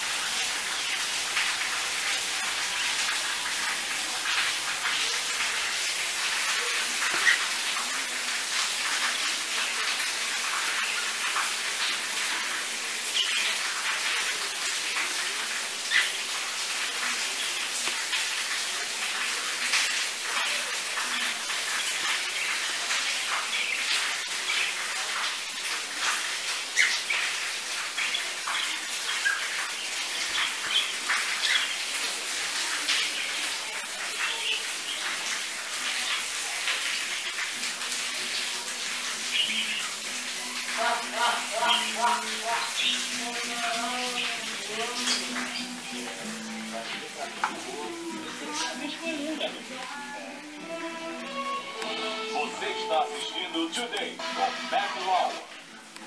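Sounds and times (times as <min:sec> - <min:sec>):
rain hissing: 0:00.0 - 0:56.0
pet birds chirping and squawking: 0:07.0 - 0:07.9, 0:26.0 - 0:31.9, 0:39.2 - 0:40.0, 0:41.0 - 0:45.8.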